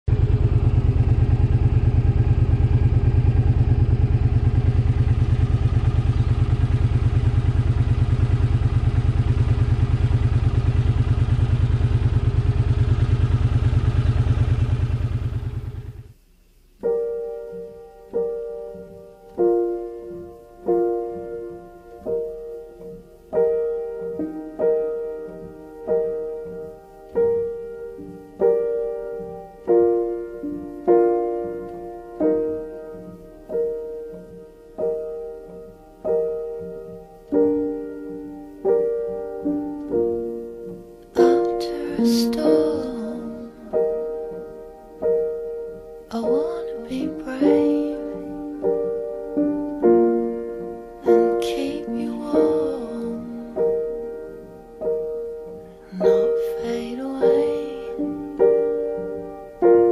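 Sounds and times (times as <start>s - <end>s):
motorcycle engine idling: 0.1s - 16.2s
gentle piano song: 16.7s - 59.9s.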